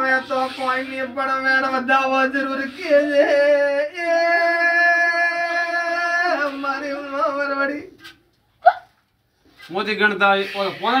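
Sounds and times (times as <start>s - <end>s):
man singing folk song: 0.0s - 8.0s.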